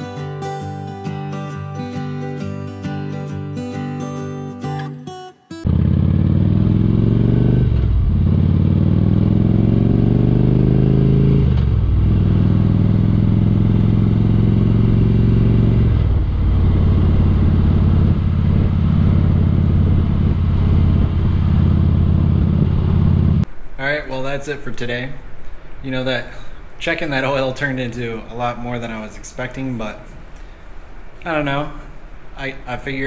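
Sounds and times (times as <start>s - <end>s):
motorcycle engine accelerating: 5.6s - 23.5s.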